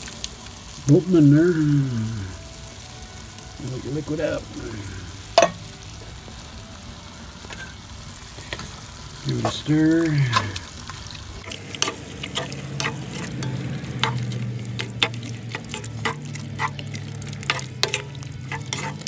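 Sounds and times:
stew sizzling: 0.0 - 19.0
wooden spoon scraping pot: 11.4 - 19.0.

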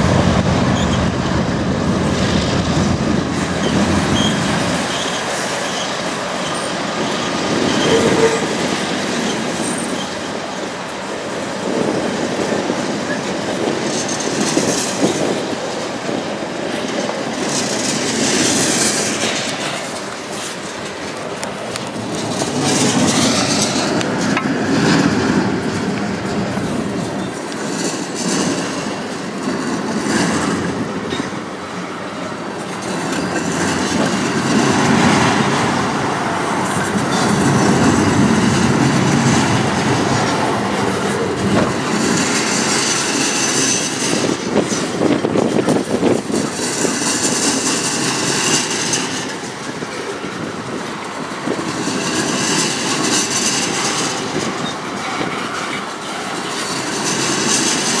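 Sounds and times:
train wheels clacking on rails: 0.0 - 58.0
high-pitched wheel squeal: 3.6 - 8.6.

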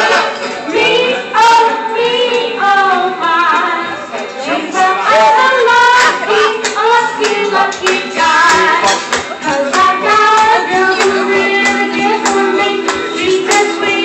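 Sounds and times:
boy singing into a microphone: 0.7 - 14.0
accompaniment with steady beat: 4.8 - 14.0.

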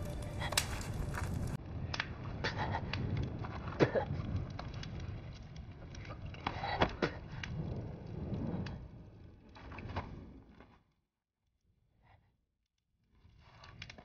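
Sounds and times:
sharp clicks and crackles: 0.0 - 10.2.

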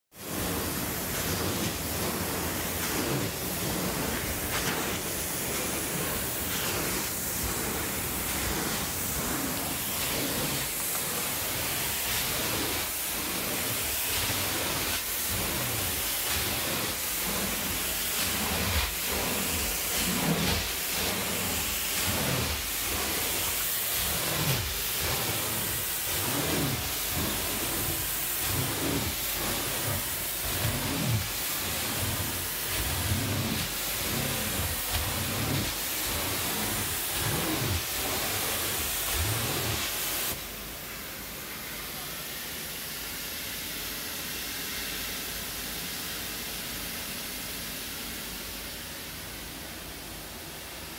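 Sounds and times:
steam cleaner wand hissing: 0.1 - 48.1.

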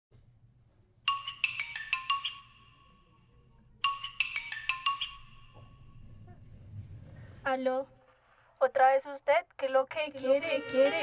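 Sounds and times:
marimba ringtone: 1.1 - 3.1, 3.8 - 6.0.

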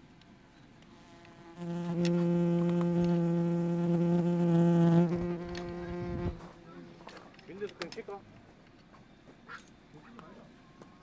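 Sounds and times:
bee buzzing: 0.9 - 6.9.

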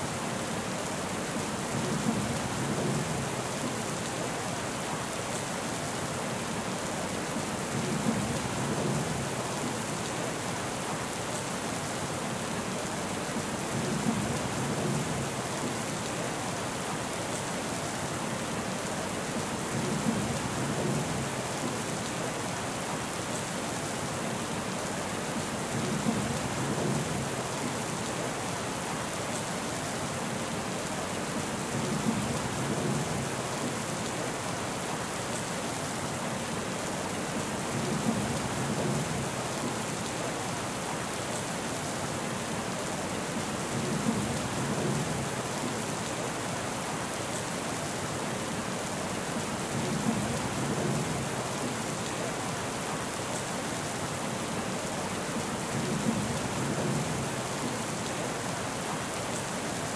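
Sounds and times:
steady rain: 0.0 - 59.9.

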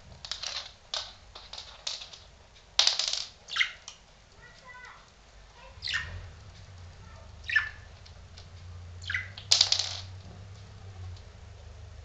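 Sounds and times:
budgerigar chirping: 3.5 - 3.9, 5.8 - 6.2, 7.4 - 7.9, 9.0 - 9.5.

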